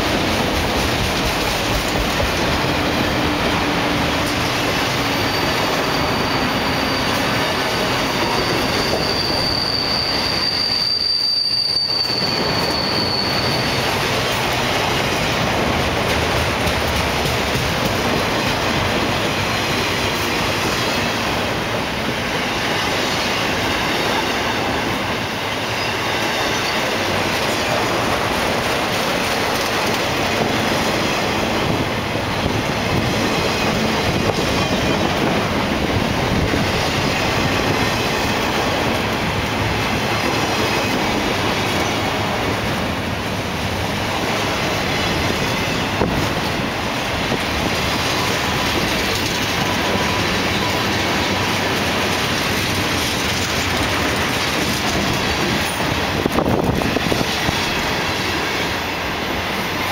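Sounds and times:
high-pitched wheel squeal: 4.7 - 14.4
freight cars rumbling and rattling: 12.4 - 22.2, 26.5 - 58.2.

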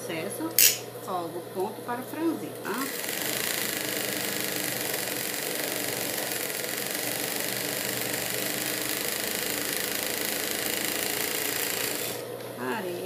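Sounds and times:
sewing machine running: 2.7 - 12.4.

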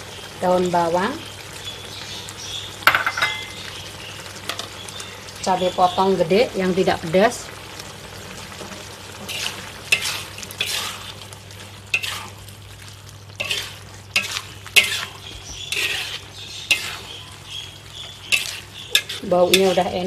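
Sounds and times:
sauce sizzling: 0.0 - 20.0
spatula scraping metal wok: 9.2 - 11.3, 11.9 - 12.4, 13.4 - 20.0.

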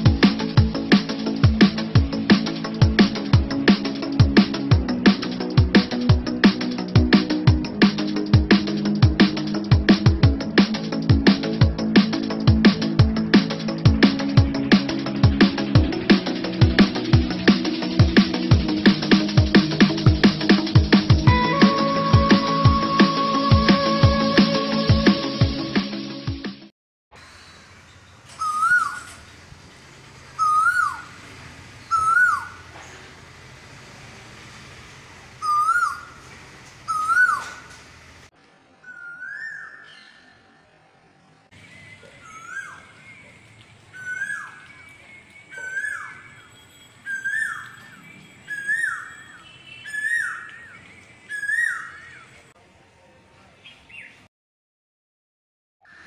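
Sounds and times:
bird loud whistled calls: 28.3 - 29.2, 30.4 - 31.2, 31.8 - 32.7, 35.4 - 36.2, 36.9 - 37.7, 38.8 - 40.3, 41.7 - 52.3.

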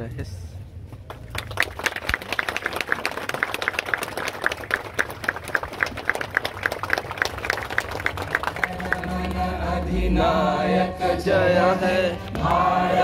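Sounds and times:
crowd applauding: 1.1 - 9.6, 12.0 - 13.0.

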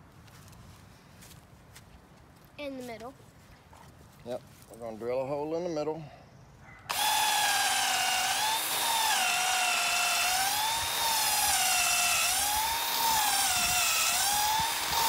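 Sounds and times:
cordless drill boring into wood: 6.9 - 15.0.

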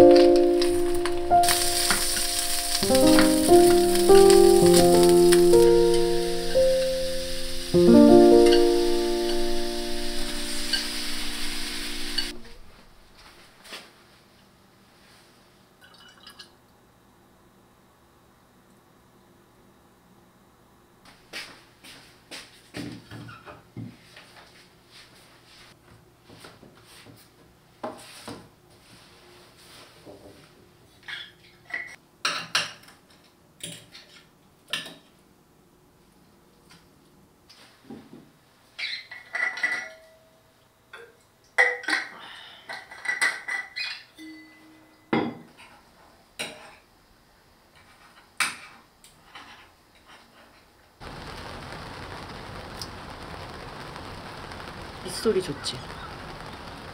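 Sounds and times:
cutlery clinking on plate: 39.1 - 40.2.

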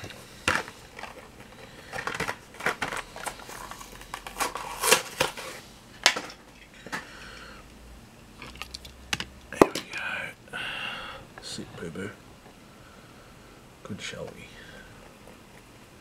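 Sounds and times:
plastic items clicking and tapping: 0.0 - 7.1.

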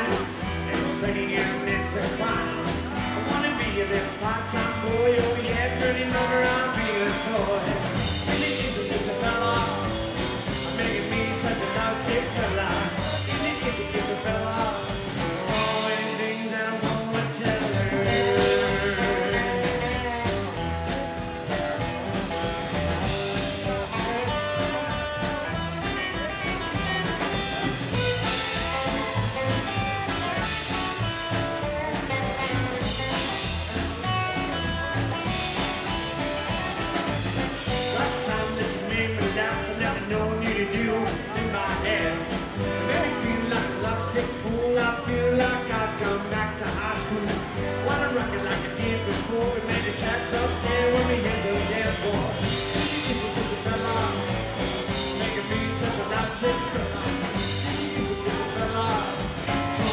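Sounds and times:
man singing: 0.0 - 31.2, 31.8 - 59.9
acoustic guitar: 0.0 - 59.9
drum kit: 0.0 - 59.9
upright double bass: 0.0 - 59.9.

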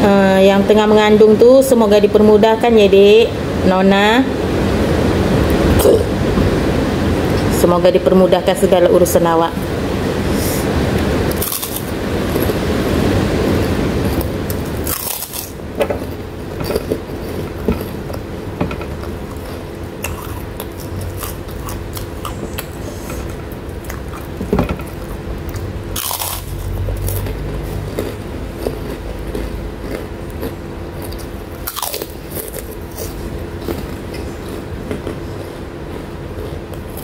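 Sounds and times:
chewing and mouth sounds: 13.4 - 37.0.

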